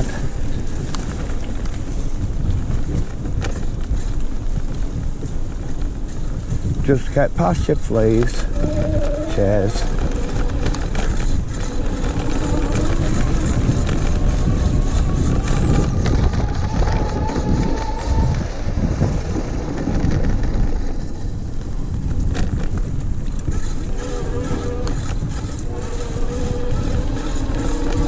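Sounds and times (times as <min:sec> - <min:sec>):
bike rattling over bumps: 0:00.0 - 0:28.0
tyres rumbling on dirt trail: 0:00.0 - 0:28.0
electric motor whine: 0:08.2 - 0:21.6, 0:23.2 - 0:28.0.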